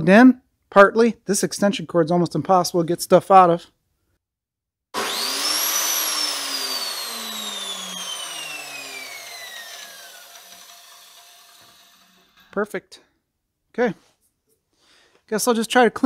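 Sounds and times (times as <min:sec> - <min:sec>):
saw motor whine: 0:05.0 - 0:12.5
saw trigger pull: 0:05.0 - 0:12.5.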